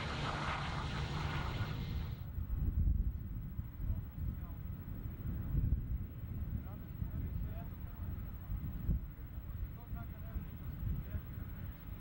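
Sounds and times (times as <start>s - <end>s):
jet engine hiss: 0.0s - 2.2s
wind rumble on microphone: 0.0s - 12.0s.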